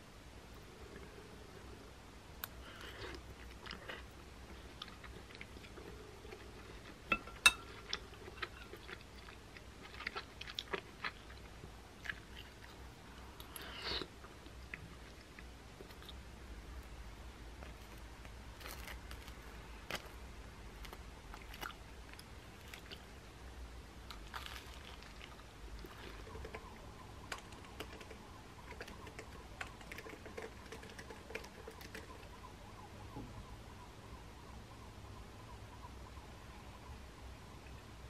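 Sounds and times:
chewing: 2.7 - 12.8, 24.1 - 32.3
spoon clinking on ceramic bowls: 7.1 - 7.8.

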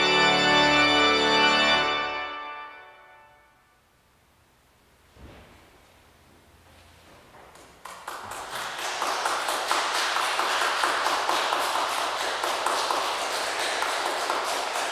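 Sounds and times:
audience applauding: 7.8 - 14.9.

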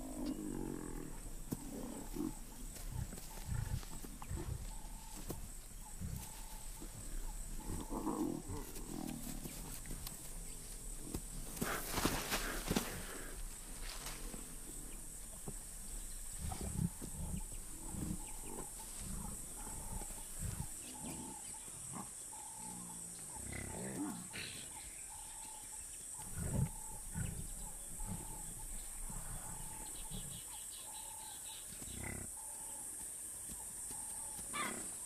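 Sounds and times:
lions growling: 0.0 - 5.2, 5.8 - 9.7, 16.3 - 22.8, 26.2 - 30.4
faint high animal call: 34.5 - 34.9.

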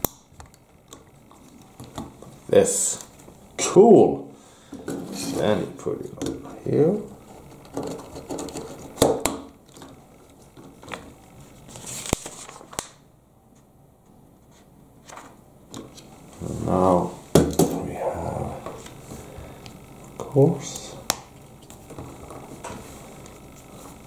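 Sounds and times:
low voice murmuring: 16.4 - 17.2, 17.8 - 18.9.

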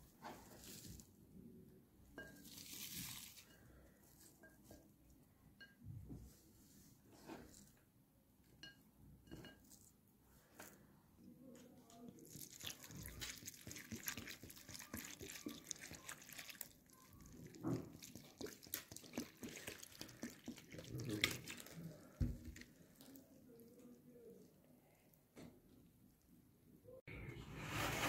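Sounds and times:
wet crunching of stirred onions: 2.2 - 4.7, 12.0 - 23.9.

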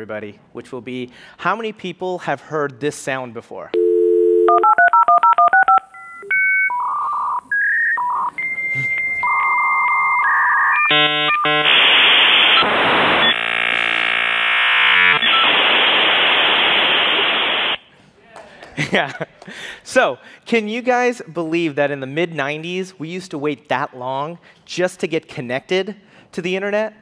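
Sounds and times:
touch-tone dialing: 3.8 - 7.4
modem tones: 3.8 - 17.8
modem hissing screech with beeps: 7.5 - 17.8.

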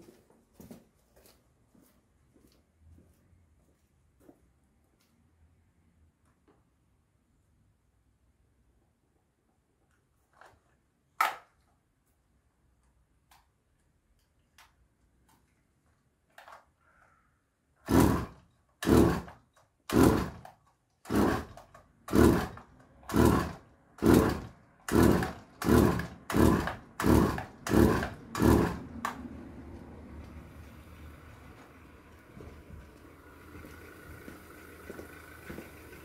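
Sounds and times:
recoil starter pulls: 17.8 - 29.2
engine running quietly: 29.0 - 36.0.

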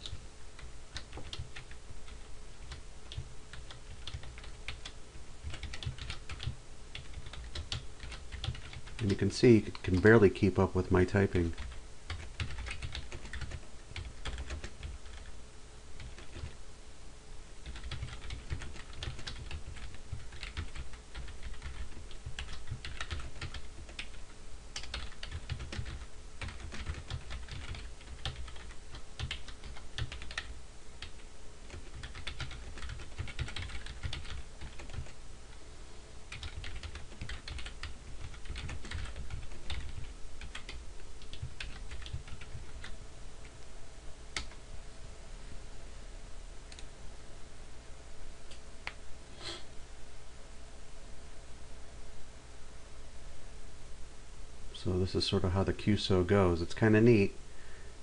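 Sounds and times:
typing on computer keyboard: 0.0 - 10.0, 11.5 - 15.3, 16.0 - 16.6, 17.6 - 24.2, 24.8 - 35.2, 36.3 - 42.9.

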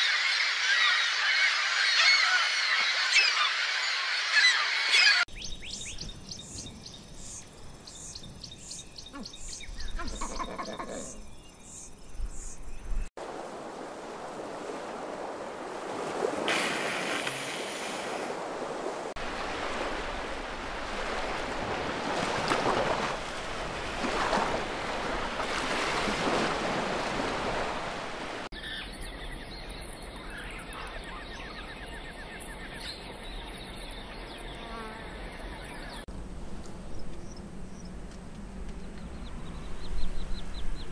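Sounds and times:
insects buzzing: 5.3 - 13.1, 32.9 - 40.9
lower bird call: 7.9 - 13.0
surging sea and wind wash: 12.9 - 28.5.

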